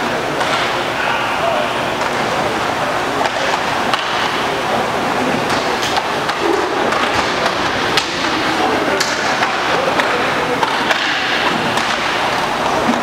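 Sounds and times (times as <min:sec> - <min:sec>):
skate wheels rolling on rink floor: 0:02.0 - 0:13.0
sticks clacking on puck: 0:05.4 - 0:13.0.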